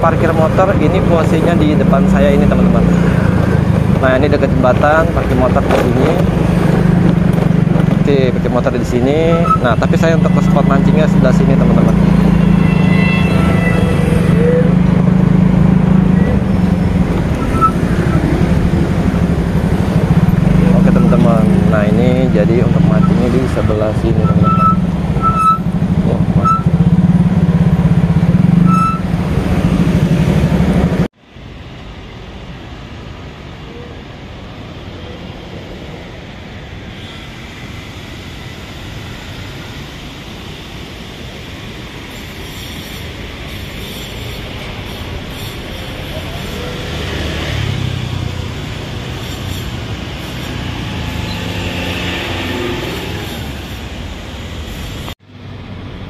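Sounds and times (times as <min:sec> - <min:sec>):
motorcycle engine: 0:00.0 - 0:31.2, 0:45.3 - 0:54.5
city traffic hum: 0:00.0 - 0:56.0
short high beeps: 0:09.2 - 0:09.8, 0:17.3 - 0:18.3, 0:20.9 - 0:21.3, 0:24.2 - 0:25.7, 0:26.4 - 0:26.8, 0:28.6 - 0:29.1.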